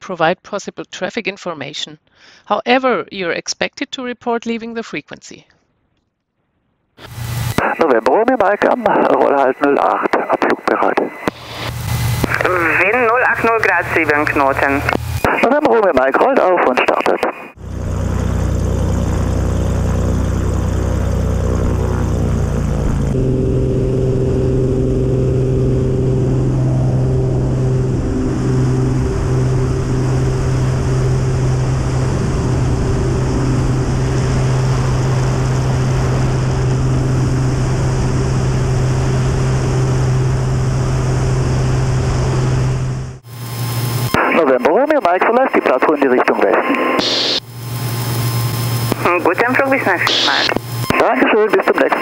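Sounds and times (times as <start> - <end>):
aircraft engine and propeller drone: 7.1 - 10.4, 11.4 - 52.0.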